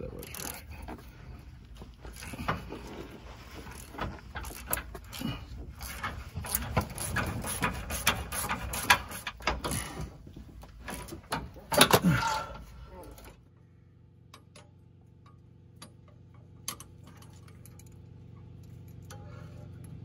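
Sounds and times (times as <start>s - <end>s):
ratchet pawl clicking: 0.2s - 0.7s.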